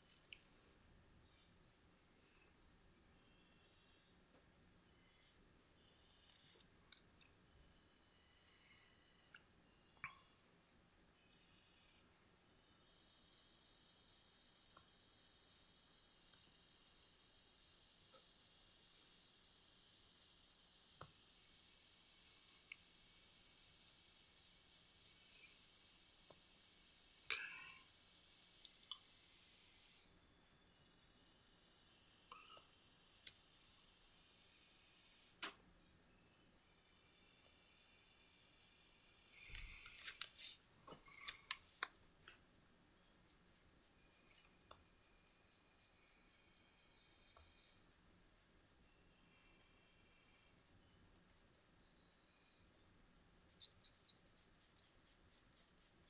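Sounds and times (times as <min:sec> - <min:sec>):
pencil scratching on paper: 0:03.3 - 0:06.6, 0:10.1 - 0:26.4, 0:36.6 - 0:41.9, 0:42.8 - 0:56.0.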